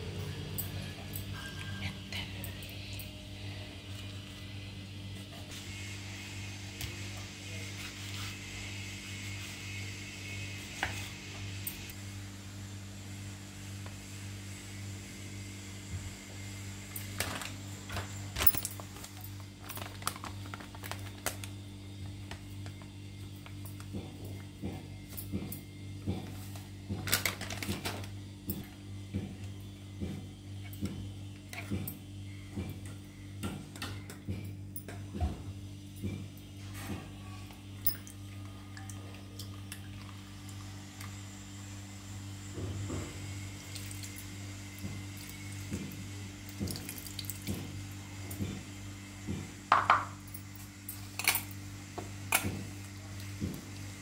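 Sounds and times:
steady low hum: 0.0s - 54.0s
plastic packet crinkling: 18.7s - 21.5s.

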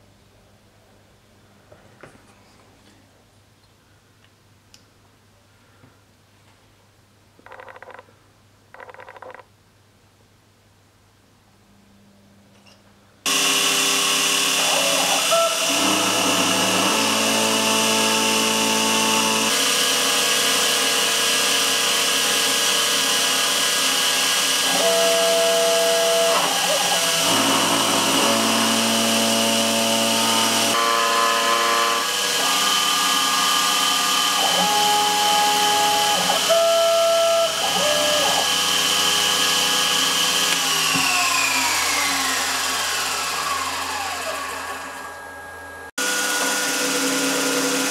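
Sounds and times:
milling machine spindle whine: 13.3s - 47.9s
axis motors moving: 24.5s - 45.2s.

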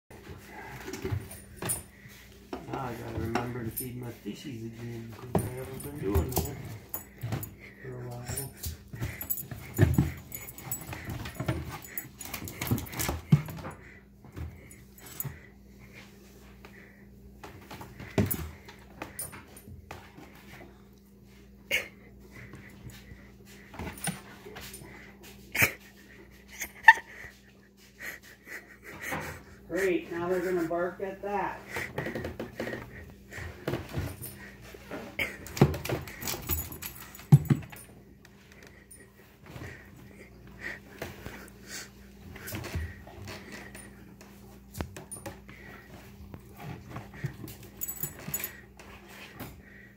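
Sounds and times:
faint low hum: 0.2s - 49.9s
collar tags jingling: 0.7s - 16.0s, 32.5s - 49.5s
dogs sniffing: 21.4s - 49.9s.

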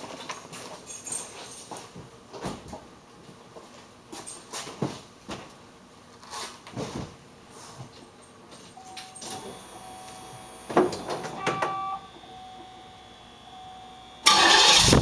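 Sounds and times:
thin steady high tone: 8.8s - 10.8s, 11.4s - 14.3s.

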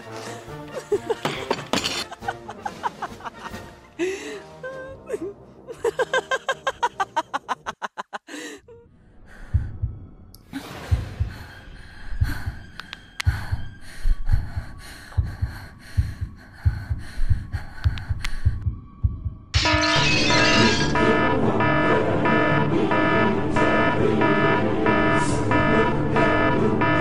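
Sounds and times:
woman laughing loudly: 0.8s - 4.2s, 4.8s - 8.6s
heartbeat sound effect: 9.3s - 10.2s, 10.8s - 12.6s, 13.3s - 19.5s.

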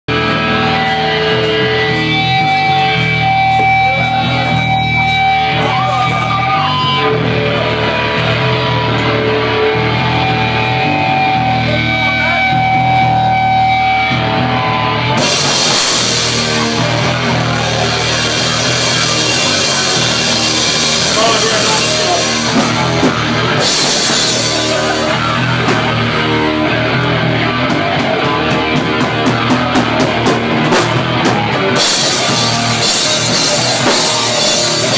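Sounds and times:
drum kit: 0.1s - 34.9s
electric guitars: 0.1s - 34.9s.

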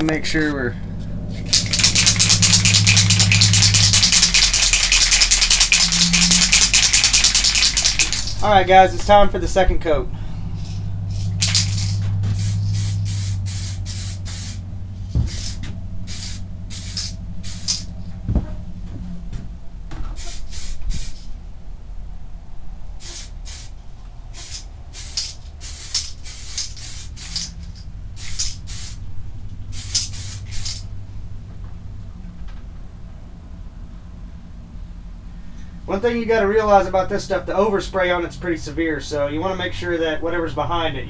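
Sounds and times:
steady low hum: 0.0s - 41.0s
aerosol spray hissing: 1.4s - 8.4s, 10.6s - 14.6s, 15.2s - 17.9s, 20.2s - 21.3s, 23.0s - 29.0s, 29.7s - 30.9s.

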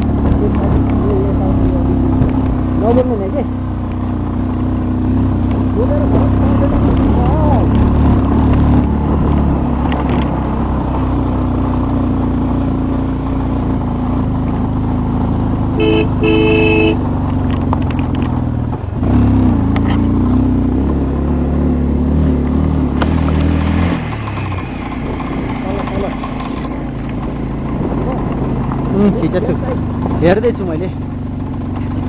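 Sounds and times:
vehicle engine running: 0.0s - 32.0s
horn sounding: 15.8s - 17.0s.

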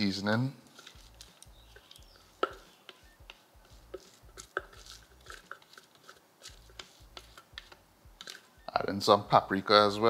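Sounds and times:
soft taps and clicks of bowl: 1.8s - 2.7s.

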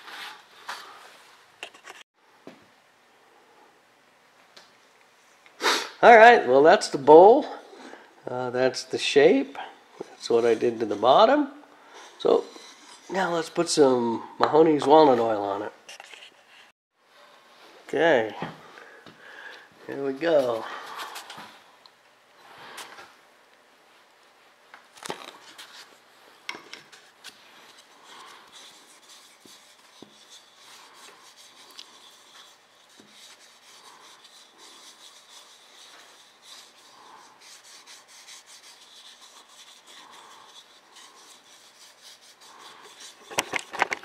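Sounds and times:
glove rubbing on wood: 26.9s - 44.0s.

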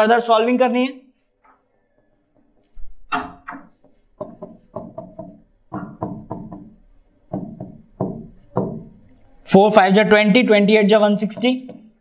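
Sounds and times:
stylus tapping on whiteboard: 2.3s - 9.0s, 11.2s - 12.0s.

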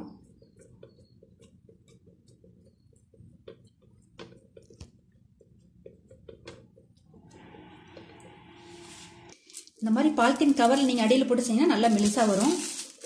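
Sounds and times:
fingers patting dough: 0.0s - 7.1s.

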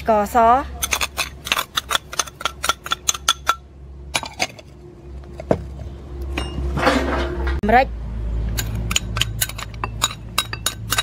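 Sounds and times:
ceramic bowls clinking: 8.6s - 11.0s.

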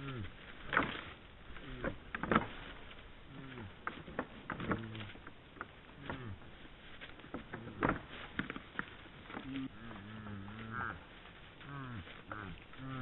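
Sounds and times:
deer grunting: 0.0s - 0.8s, 1.5s - 2.4s, 3.2s - 5.2s, 5.9s - 6.6s, 9.2s - 13.0s
antlers clattering: 0.0s - 10.6s.

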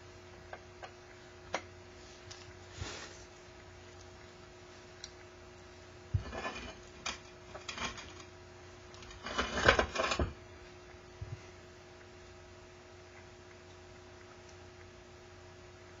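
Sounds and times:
faint steady hum: 0.0s - 16.0s
ceramic bowl knocking and scraping: 6.1s - 8.3s, 9.1s - 10.4s
rubbing and clatter: 6.2s - 8.3s, 9.0s - 10.4s.

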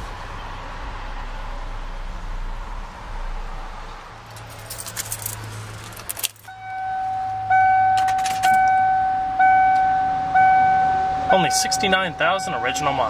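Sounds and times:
keys jangling: 4.3s - 6.5s, 8.0s - 8.8s
dashboard warning chime: 6.5s - 13.0s.

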